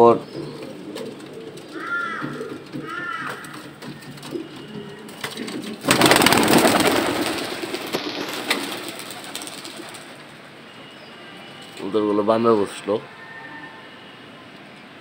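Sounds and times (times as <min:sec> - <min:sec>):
pigeons cooing: 0:00.0 - 0:10.3
flock flapping wings: 0:05.3 - 0:10.2.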